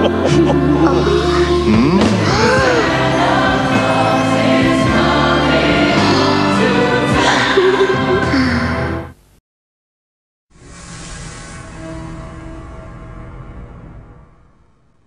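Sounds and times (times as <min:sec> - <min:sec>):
choir singing: 0:00.0 - 0:08.4.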